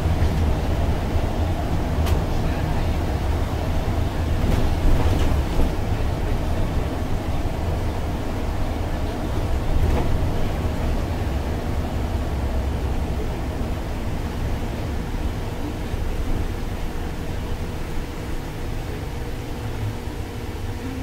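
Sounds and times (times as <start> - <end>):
bus engine rumble: 0.0 - 21.0.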